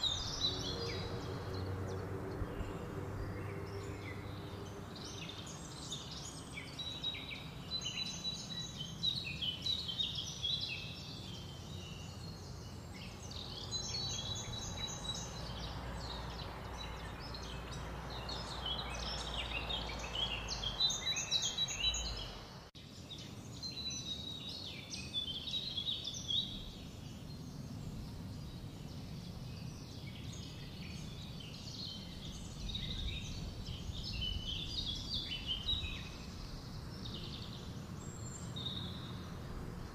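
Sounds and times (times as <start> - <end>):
low outdoor rumble: 0.0 - 8.9
songbirds twittering: 0.0 - 39.9.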